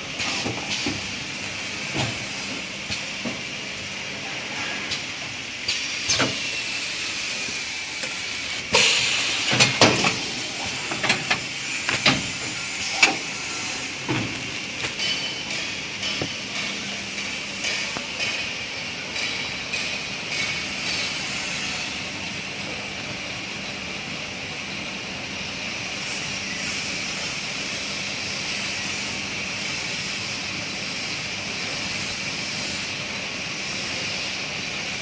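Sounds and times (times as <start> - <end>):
packing machine hiss and hum: 0.0 - 35.0
machine clacks and knocks: 9.5 - 13.3, 14.0 - 20.7.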